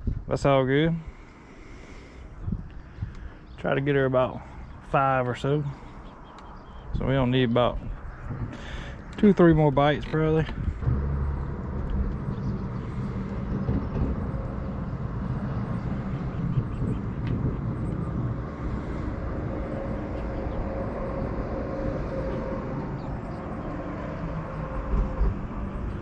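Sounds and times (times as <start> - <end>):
outdoor background noise: 0.0 - 26.0
low motor hum: 5.7 - 26.0.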